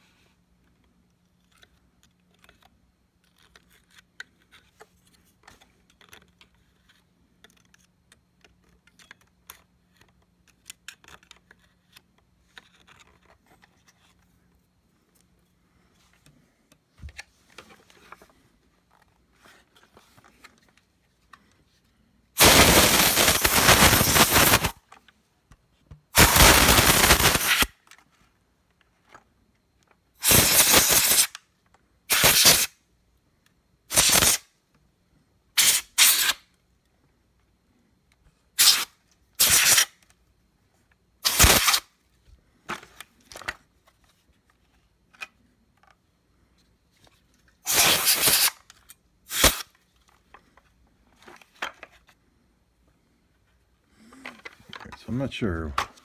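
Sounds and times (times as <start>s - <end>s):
compressed air hissing: 22.4s - 24.8s, 26.2s - 27.7s, 30.2s - 31.3s, 32.1s - 32.7s, 33.9s - 34.4s, 35.6s - 36.4s, 38.6s - 39.9s, 41.2s - 41.8s, 47.7s - 48.6s, 49.3s - 49.6s.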